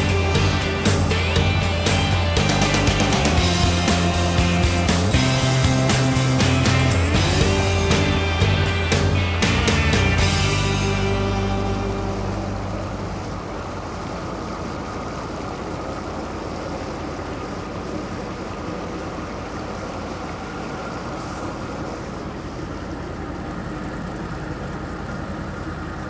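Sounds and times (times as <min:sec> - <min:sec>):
background music: 0:00.0 - 0:13.8
boat motor running: 0:00.0 - 0:26.0.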